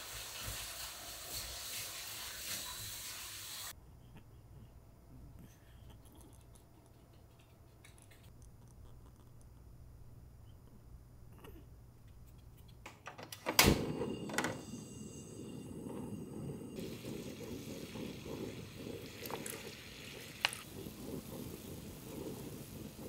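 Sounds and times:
broth bubbling in a pot: 15.7 - 23.0.

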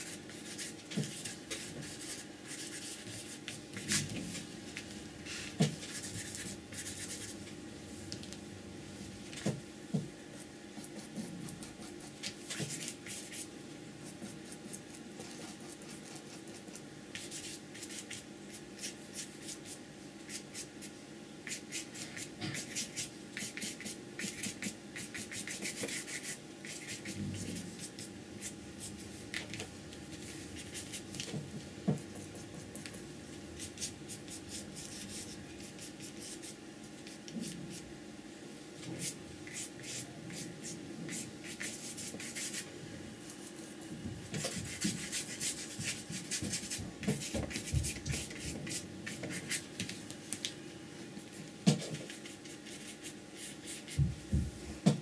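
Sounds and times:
brush scratching paint onto paper: 0.0 - 4.2, 5.3 - 7.4, 10.4 - 28.5, 33.6 - 37.8, 39.0 - 42.6, 44.4 - 49.6, 52.0 - 54.0.

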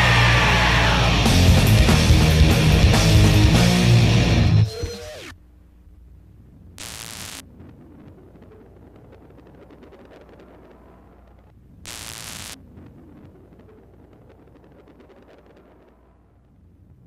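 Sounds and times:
low steady hum: 0.0 - 12.0
static hiss bursts: 6.8 - 7.4, 9.6 - 12.6.

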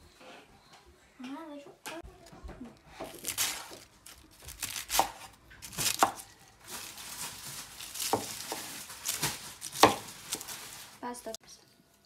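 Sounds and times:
knife crunching through lettuce: 3.0 - 10.8.

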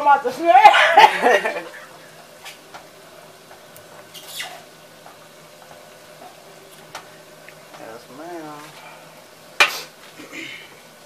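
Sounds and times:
short squeak: 4.1 - 4.6.

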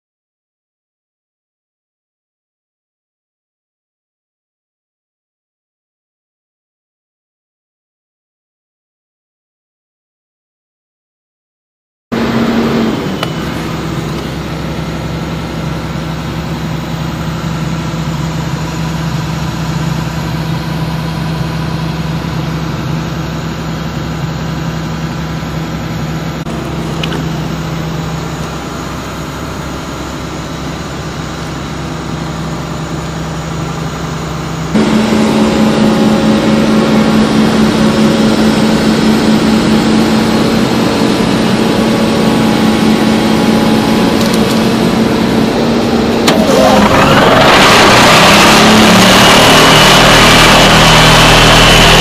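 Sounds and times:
excavator engine and hydraulics hum: 12.2 - 52.0.

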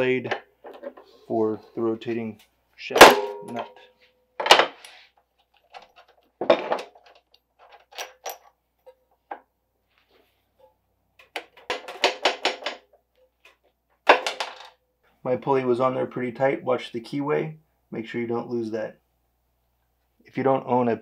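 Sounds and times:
metallic clicks and knocks: 11.2 - 14.7.

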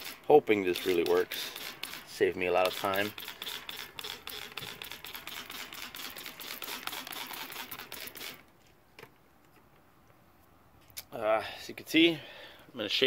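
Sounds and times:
spray bottle hissing: 0.0 - 8.4.

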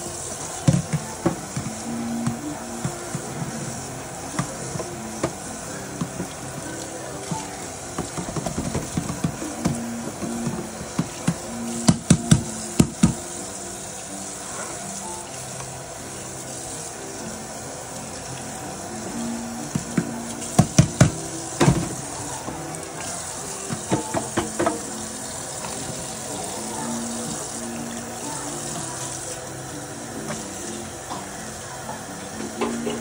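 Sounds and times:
tap water running: 0.0 - 33.0
dishes clattering: 32.4 - 33.0.

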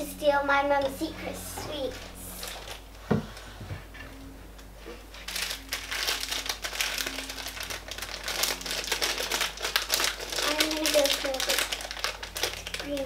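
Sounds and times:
plastic bag crinkling: 1.8 - 3.0, 5.1 - 13.0.

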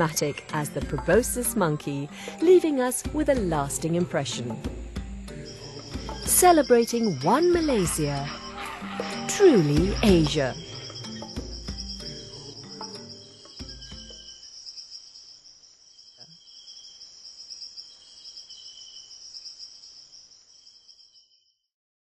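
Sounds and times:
insects chirring: 0.0 - 21.7
closing music: 3.4 - 14.1.

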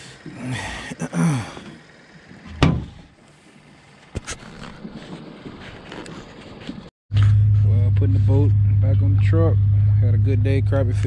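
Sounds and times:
heavy thump: 2.5 - 3.0.

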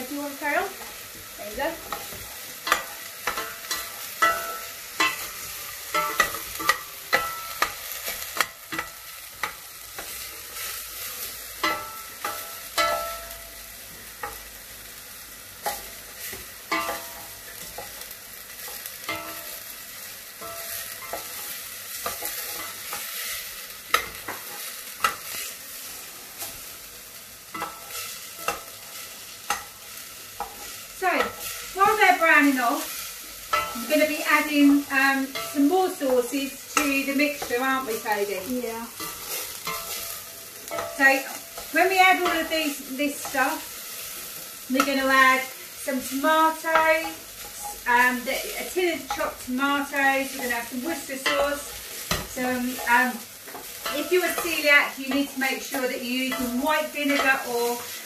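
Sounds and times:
onions sizzling in a pan: 0.0 - 58.0
utensil scraping against pan: 34.9 - 42.5.

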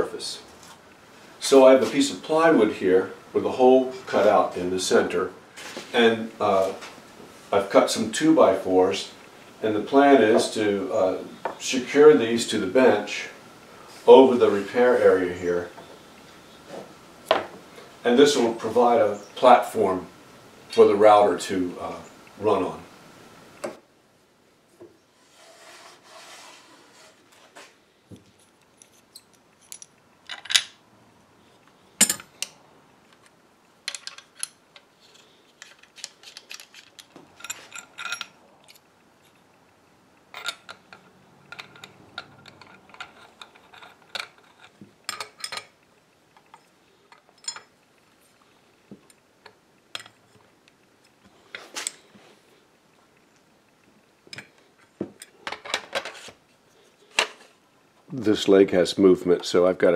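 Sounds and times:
metal tools clicking and clanking: 28.4 - 30.8, 32.0 - 32.5, 33.1 - 38.9, 40.3 - 45.8, 46.4 - 47.8, 49.1 - 50.5.

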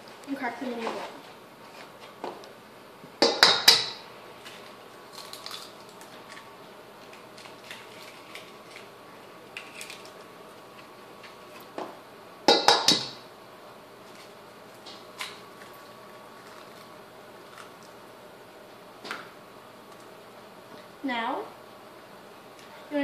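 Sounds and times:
eggs cracked on a steel bowl: 3.2 - 4.0, 12.5 - 13.2.

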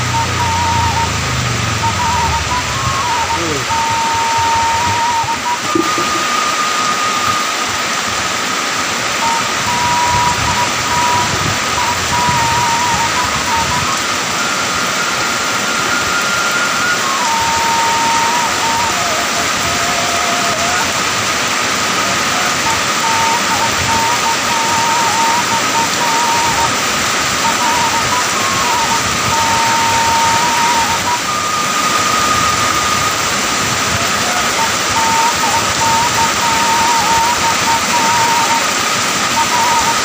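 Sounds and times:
heavy rain on paving: 0.0 - 40.0.

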